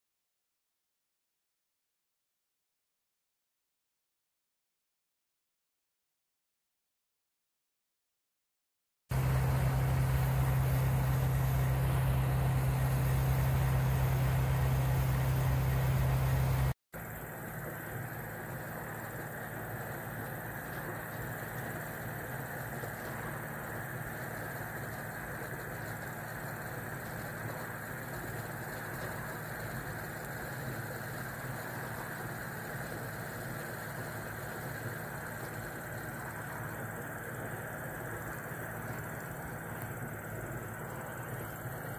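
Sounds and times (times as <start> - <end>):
burner flame hissing: 9.1 - 41.9
low hum: 9.1 - 41.9.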